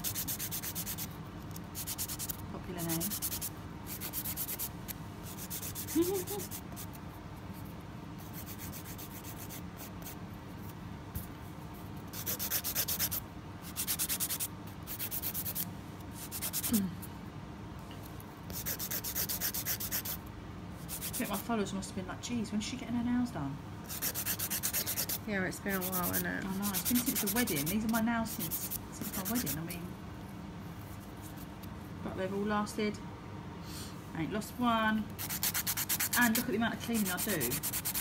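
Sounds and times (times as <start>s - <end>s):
nail file scraping nails: 0.0s - 4.7s, 5.3s - 7.0s, 8.3s - 10.2s, 12.1s - 16.8s, 18.5s - 20.2s, 20.9s - 21.4s, 23.9s - 29.6s, 35.2s - 38.0s.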